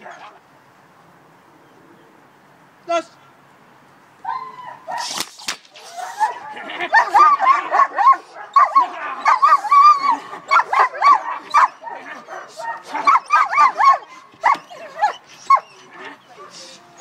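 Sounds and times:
dog barking and yipping: 0:04.2 - 0:05.2, 0:05.9 - 0:16.6.

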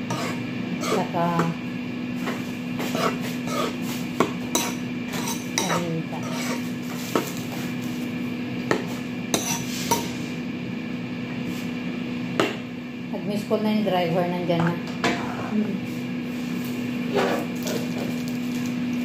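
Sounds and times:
fork stirring in bowl: 0:00.0 - 0:01.5, 0:02.2 - 0:07.7, 0:08.8 - 0:10.2.

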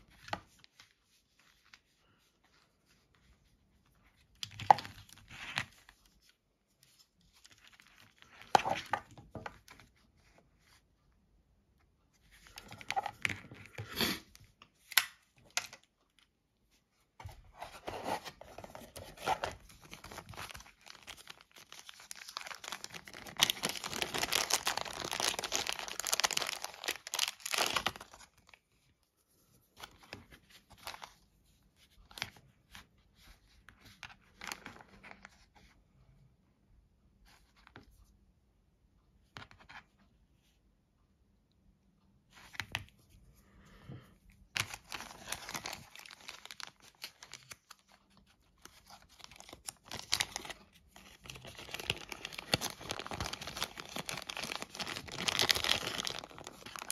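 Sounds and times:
plastic zip bag crinkling: 0:18.9 - 0:28.6, 0:44.6 - 0:48.0, 0:48.6 - 0:56.9.

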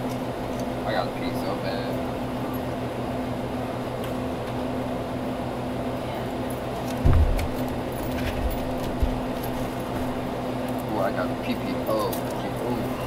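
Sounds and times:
steady mechanical hum: 0:00.0 - 0:13.0
short low thump: 0:07.0 - 0:07.6.

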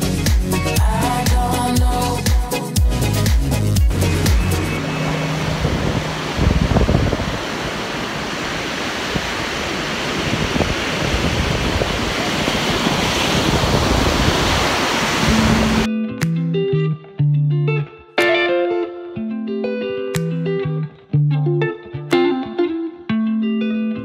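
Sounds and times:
guitar music: 0:00.0 - 0:07.5, 0:15.4 - 0:24.0
ocean surf breaking: 0:04.6 - 0:15.9
wind buffeting microphone: 0:05.0 - 0:15.9.

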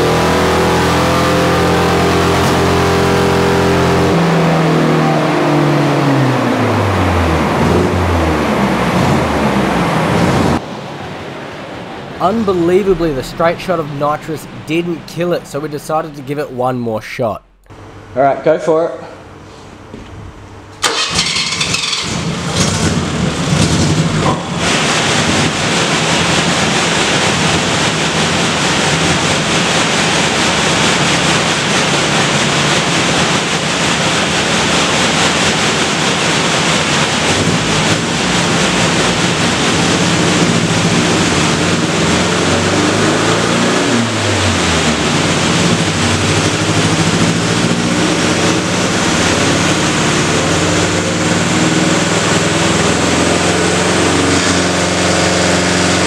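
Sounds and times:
engine running hard on dyno: 0:00.0 - 0:16.4, 0:19.2 - 0:56.0.

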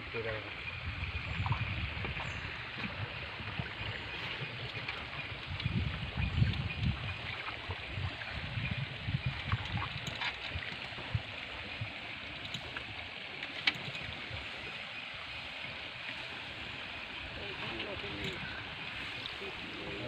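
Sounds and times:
water gurgling and dripping: 0:00.0 - 0:20.0
river water rushing: 0:09.8 - 0:20.0.

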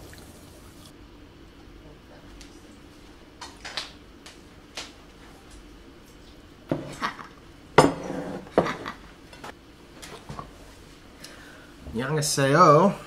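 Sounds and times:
plates clattering with cutlery: 0:07.8 - 0:09.0.

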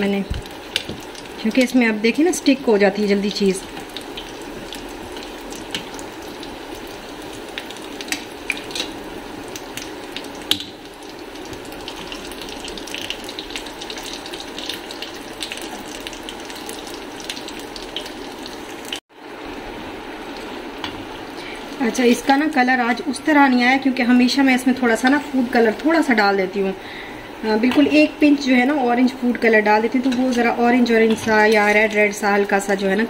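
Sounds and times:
oil crackling and popping: 0:00.0 - 0:01.8, 0:03.4 - 0:19.0
cutlets sizzling in oil: 0:00.0 - 0:26.7, 0:27.4 - 0:33.0.

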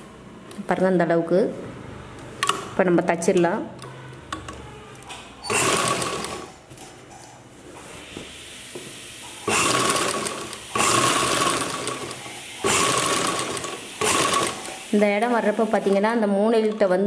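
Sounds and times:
sewing machine stitching: 0:05.4 - 0:06.6, 0:09.4 - 0:14.8.

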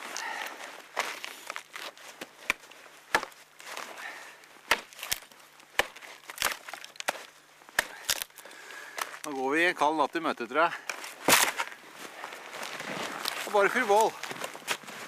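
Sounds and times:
wood crunching and rustling: 0:00.0 - 0:15.0
twigs snapping: 0:00.9 - 0:09.5, 0:10.8 - 0:11.8.

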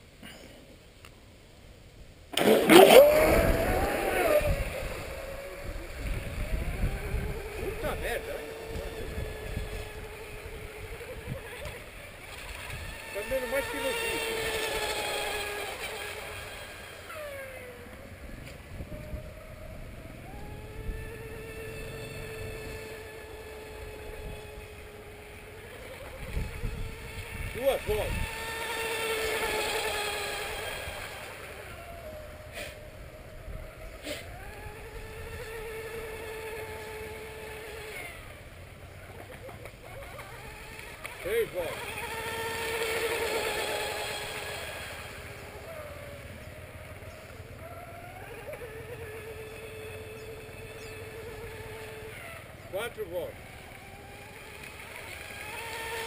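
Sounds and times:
model boat motor whine: 0:02.1 - 0:56.0.

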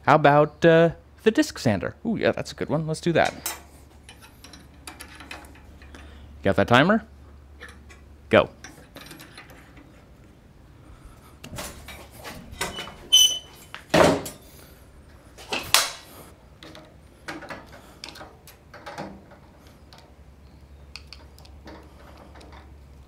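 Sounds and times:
light clicks and rattles: 0:16.6 - 0:23.0.

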